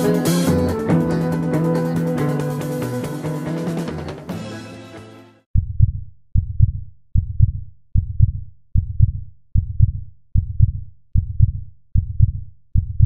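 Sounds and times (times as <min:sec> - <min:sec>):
heartbeat double thump: 0:05.6 - 0:13.0.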